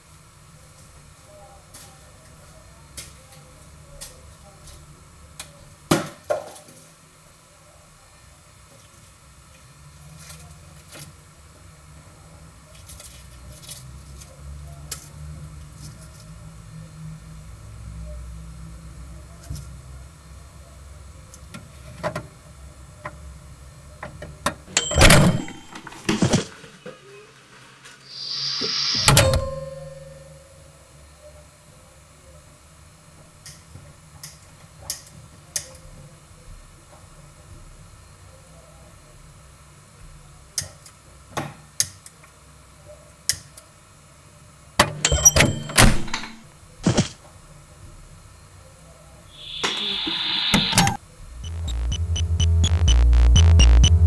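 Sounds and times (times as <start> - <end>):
microwave oven humming: 11.1 - 26.4, 28.1 - 34.4, 43.9 - 54.0
short beep: 24.8 - 25.8, 28.1 - 30.4, 45.0 - 45.9, 49.3 - 54.0.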